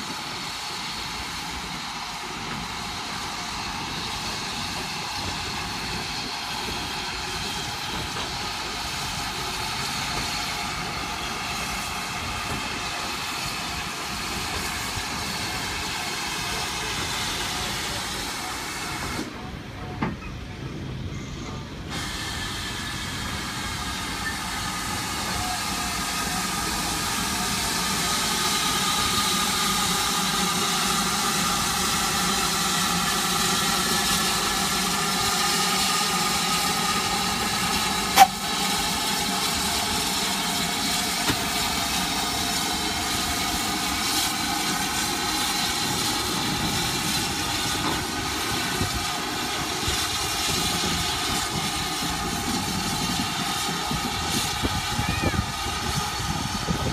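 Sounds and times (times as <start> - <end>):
steam hissing: 0.0 - 19.5, 21.0 - 56.9
train wheels running on rails: 0.0 - 56.9.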